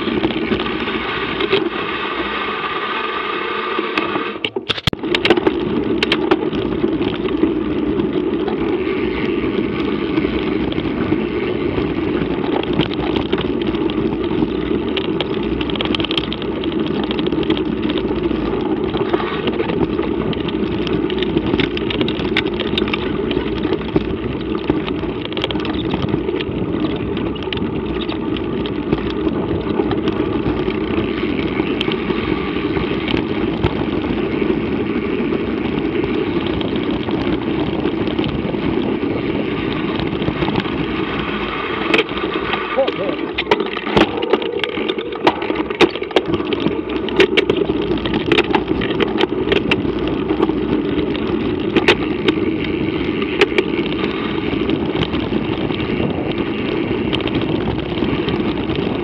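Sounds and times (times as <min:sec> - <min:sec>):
rushing wind noise: 0:00.0 - 0:59.0.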